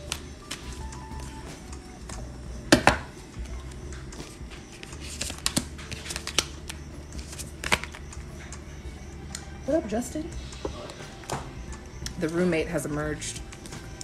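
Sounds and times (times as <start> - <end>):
cards being shuffled: 0.0 - 2.2, 3.4 - 8.0.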